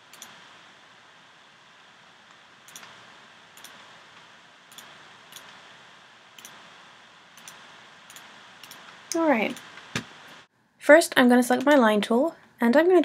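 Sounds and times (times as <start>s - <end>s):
faint hiss: 0.0s - 12.7s
computer mouse clicking: 0.1s - 0.4s, 2.7s - 3.0s, 3.6s - 3.8s, 4.7s - 5.6s, 6.4s - 6.6s, 7.4s - 10.1s.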